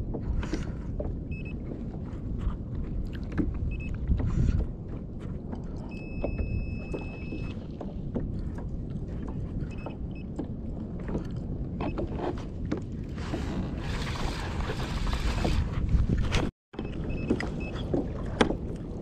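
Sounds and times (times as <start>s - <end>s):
low rumble: 0.0s - 11.8s
water sloshing against kayak hull: 0.0s - 19.0s.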